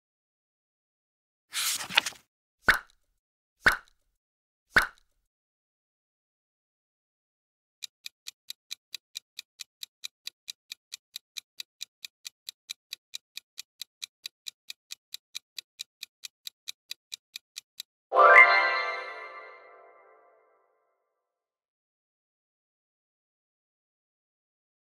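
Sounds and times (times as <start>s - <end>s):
clock ticking: 7.8s - 17.9s.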